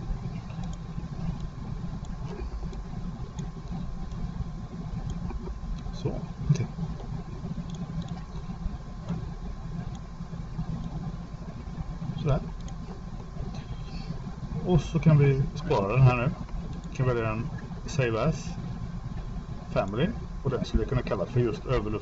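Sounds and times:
low hum with hiss: 0:00.0 - 0:22.0
computer mouse clicks: 0:00.5 - 0:04.3, 0:05.0 - 0:05.9, 0:06.5 - 0:08.3, 0:09.8 - 0:10.1, 0:12.2 - 0:12.8.

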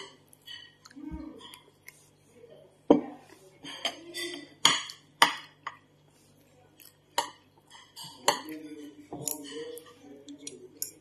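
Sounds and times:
cutlery clinking on ceramic plate: 0:07.2 - 0:11.0.

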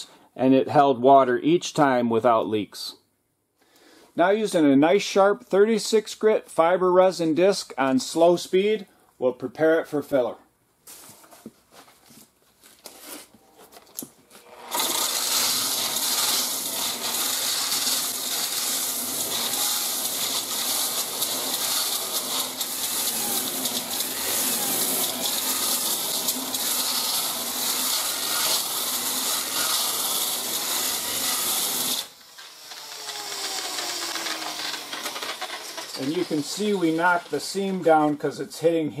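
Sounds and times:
electric sander grinding metal: 0:14.4 - 0:38.1.

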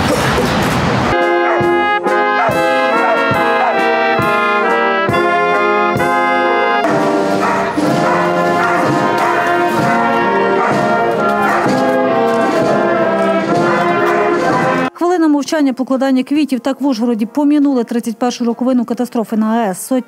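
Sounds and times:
brass band playing held chords: 0:01.1 - 0:15.0.

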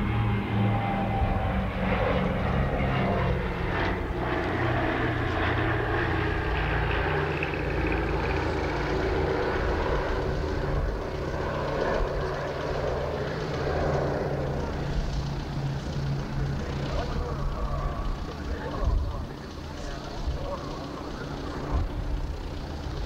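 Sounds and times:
piston engine aircraft droning overhead: 0:00.0 - 0:23.0.

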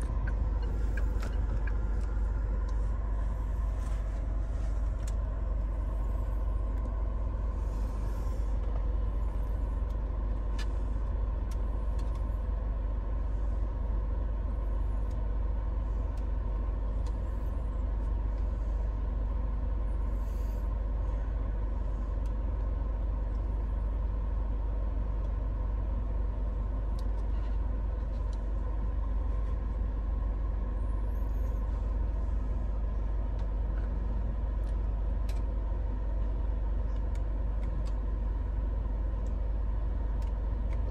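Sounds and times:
cabin climate fan: 0:00.0 - 0:40.9
car engine idling: 0:00.0 - 0:40.9
faint clicks: 0:34.6 - 0:35.6, 0:36.2 - 0:38.0, 0:40.0 - 0:40.9.

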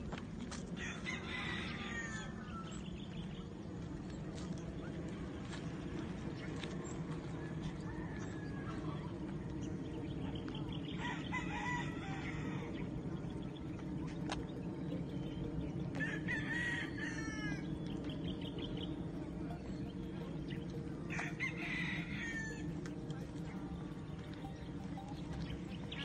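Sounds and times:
low steady rumble: 0:00.0 - 0:26.0
rooster crowing: 0:00.8 - 0:02.7, 0:11.0 - 0:12.7, 0:16.0 - 0:17.7, 0:21.1 - 0:22.7.

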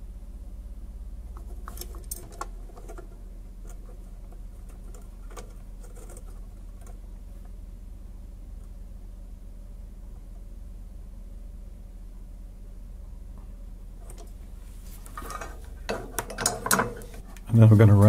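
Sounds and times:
steady low hum: 0:00.0 - 0:18.0
metal clicks taps and scrapes: 0:15.1 - 0:17.5.

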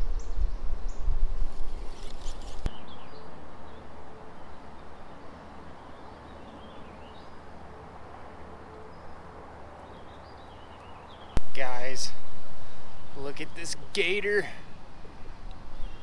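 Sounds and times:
songbirds chirping: 0:00.0 - 0:16.0
steady background hiss: 0:11.4 - 0:16.0.

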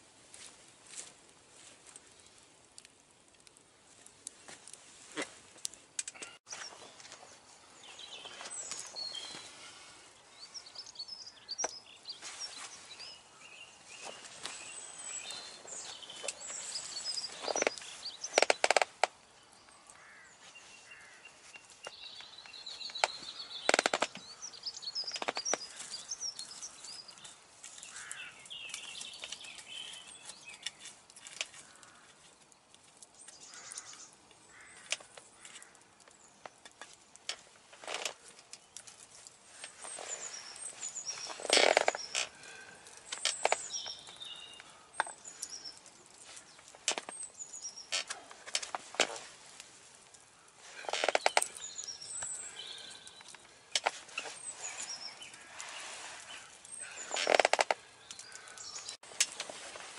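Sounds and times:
birds chirping and singing: 0:06.2 - 0:30.9, 0:39.5 - 0:48.8, 0:50.2 - 0:59.0
sharp clicks and knocks: 0:22.9 - 0:24.2.

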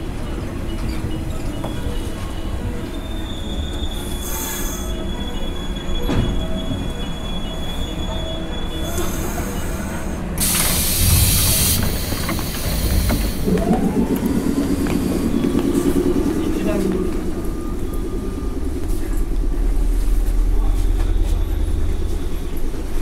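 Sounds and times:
train brakes squealing: 0:00.2 - 0:23.0
air hiss from train: 0:04.0 - 0:05.2, 0:08.8 - 0:13.5.

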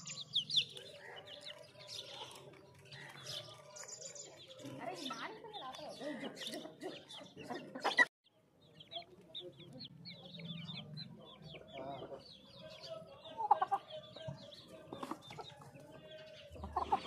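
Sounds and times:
chicks peeping and clucking: 0:00.0 - 0:17.0.

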